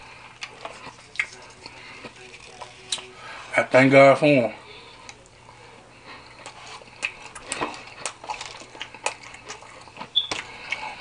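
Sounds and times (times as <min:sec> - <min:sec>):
close chewing mouth noises: 0:00.1 - 0:03.1, 0:06.0 - 0:11.0
lip smacks and clicks: 0:00.4 - 0:01.8, 0:06.9 - 0:10.9.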